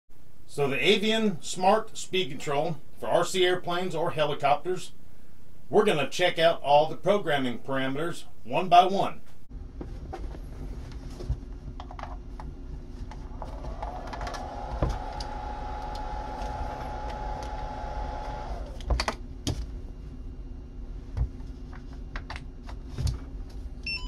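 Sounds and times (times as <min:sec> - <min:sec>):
steady low hum: 0:00.1 - 0:24.0
rising whine: 0:13.3 - 0:18.8.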